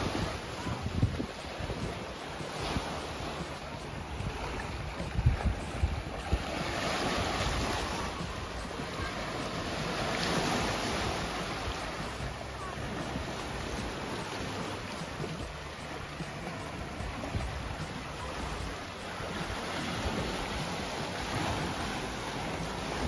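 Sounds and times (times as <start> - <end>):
sea waves breaking on rock: 0.0 - 23.0
wind buffeting microphone: 0.0 - 23.0.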